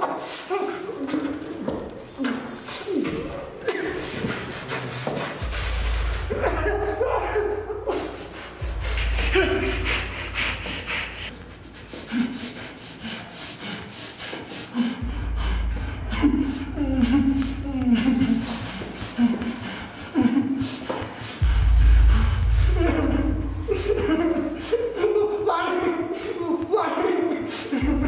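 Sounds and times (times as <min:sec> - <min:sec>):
man's muffled groans and breaths: 0:01.5 - 0:25.3
low hum: 0:05.4 - 0:11.9, 0:15.0 - 0:18.8, 0:21.4 - 0:25.4.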